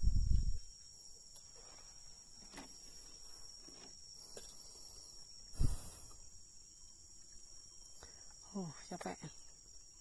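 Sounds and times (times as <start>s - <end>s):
high insect chirring: 0.0s - 10.0s
faint knocks and rustles: 1.4s - 4.6s.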